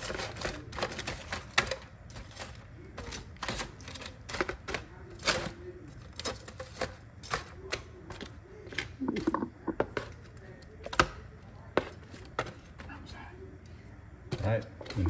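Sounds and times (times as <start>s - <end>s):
chicken wings tossed in a pan: 0.0s - 8.9s.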